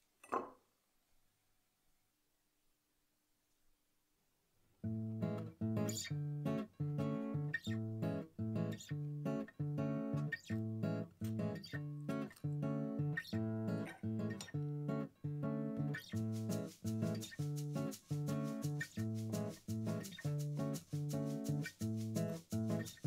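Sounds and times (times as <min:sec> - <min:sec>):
acoustic guitar strumming chords: 0:04.9 - 0:23.0.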